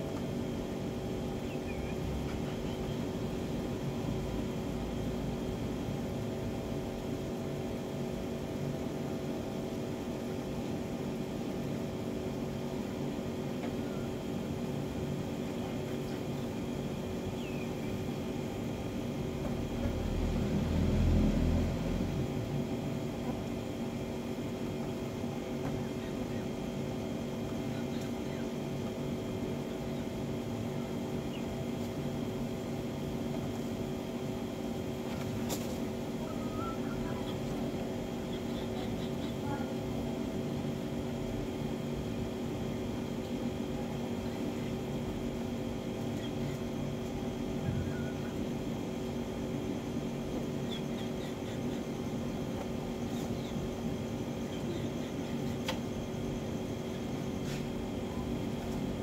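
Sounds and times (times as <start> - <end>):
steady mechanical hum: 0.0 - 59.0
faint chicken clucks: 1.3 - 3.5, 24.7 - 32.0, 35.9 - 40.2, 45.8 - 49.0, 50.3 - 56.2.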